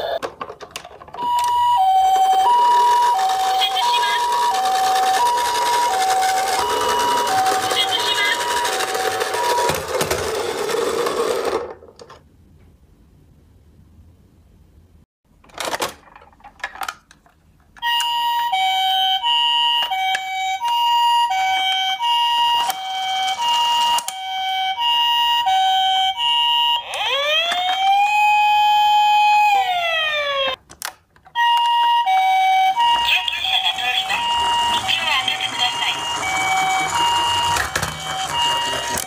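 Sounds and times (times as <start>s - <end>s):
toy siren wail: 1.2s - 10.7s, 17.8s - 30.6s, 31.4s - 39.0s
toy siren two-tone call: 1.2s - 11.5s, 17.8s - 30.6s, 31.4s - 39.0s.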